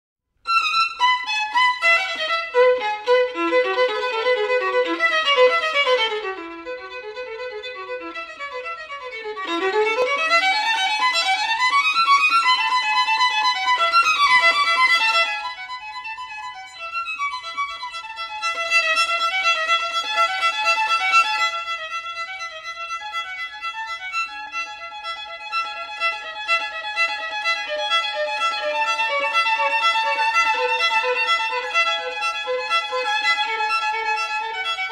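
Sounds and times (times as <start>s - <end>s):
violin music: 0.4s - 34.9s.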